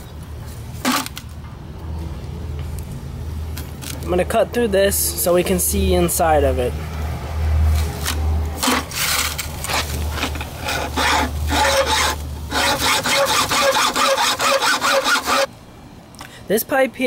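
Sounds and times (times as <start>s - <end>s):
hacksaw cutting sheet metal: 8.6s - 15.5s.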